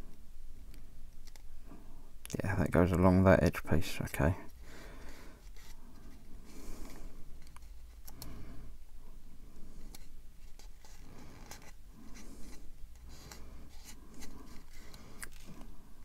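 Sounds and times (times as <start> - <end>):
masking tape clicks and scrapes: 9.8 - 15.7.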